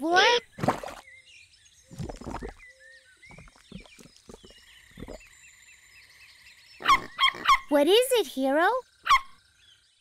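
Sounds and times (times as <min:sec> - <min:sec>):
small birds chirping: 0:00.0 - 0:10.0
cartoon wet squelches: 0:01.9 - 0:02.6.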